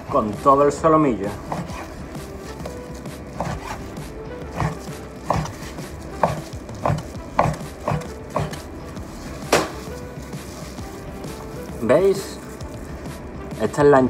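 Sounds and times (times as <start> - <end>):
knife slicing onto cutting board: 3.4 - 3.8, 4.5 - 8.6.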